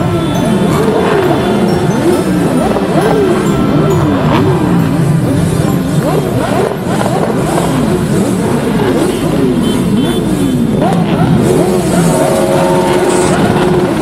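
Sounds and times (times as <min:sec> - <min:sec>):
motorcycle engines revving: 0:00.0 - 0:14.0.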